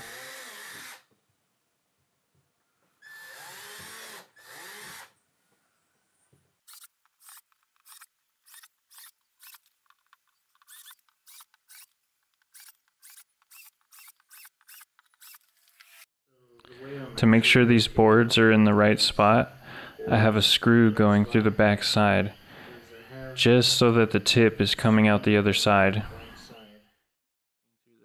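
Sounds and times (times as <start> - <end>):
cordless drill drilling plastic board: 0.0 - 1.1, 3.0 - 5.2, 6.7 - 16.1.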